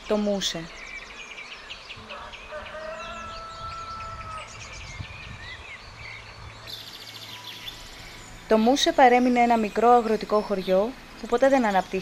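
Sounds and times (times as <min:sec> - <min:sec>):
small birds chirping: 0:00.0 - 0:12.0
rooster crowing: 0:02.0 - 0:04.6.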